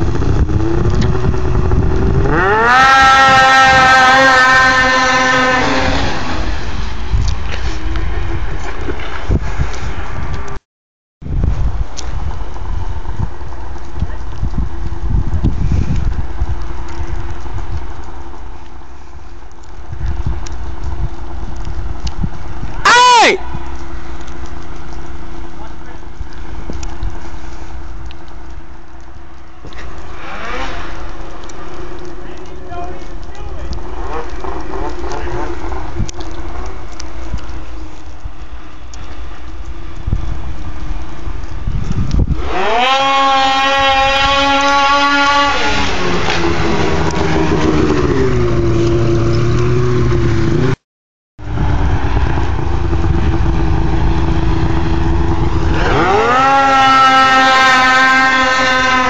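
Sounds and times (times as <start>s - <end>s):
snowmobile engines droning: 0.0s - 10.6s, 29.6s - 39.6s, 42.3s - 50.8s, 51.4s - 59.0s
wind buffeting microphone: 0.0s - 10.6s, 11.2s - 50.8s, 51.4s - 59.0s.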